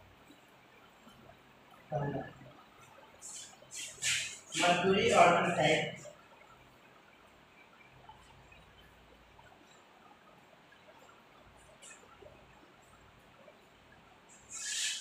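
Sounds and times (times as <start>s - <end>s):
marker scratching on whiteboard: 3.2s - 5.4s, 14.3s - 15.0s.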